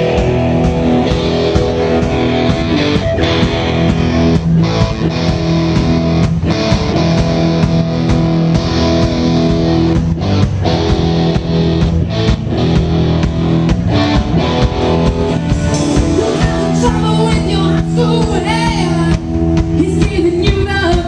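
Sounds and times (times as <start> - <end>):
drum strikes: 0.0 - 21.0
electric guitar: 0.0 - 21.0
live rock band playing: 0.0 - 21.0.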